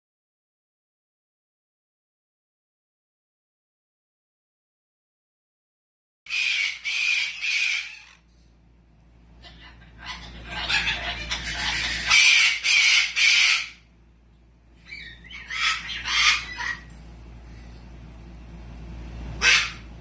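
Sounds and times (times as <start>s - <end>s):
cockatoo screeching: 6.3s - 8.2s, 9.4s - 13.9s, 14.9s - 16.9s, 19.4s - 19.9s.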